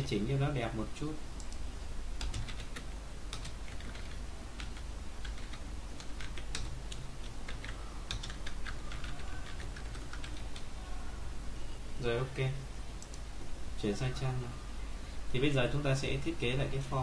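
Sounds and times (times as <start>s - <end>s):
steady low hum: 0.0s - 17.0s
keyboard typing clicks: 2.2s - 10.7s.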